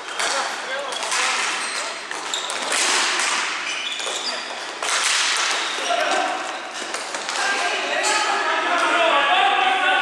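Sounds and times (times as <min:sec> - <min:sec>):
hockey sticks clacking: 0:00.0 - 0:08.9.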